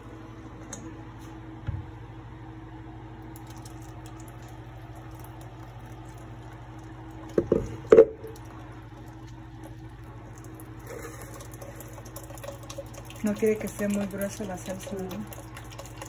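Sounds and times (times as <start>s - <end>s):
low steady hum: 0.0s - 16.0s
thick sauce pouring and squishing: 3.3s - 16.0s.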